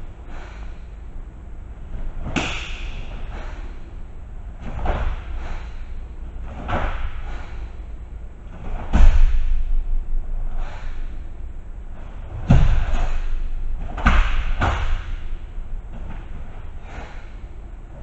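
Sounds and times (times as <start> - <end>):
thumps and snaps of martial arts strikes: 1.9 - 3.7, 4.6 - 5.8, 6.4 - 7.8, 8.5 - 10.0, 12.0 - 17.2.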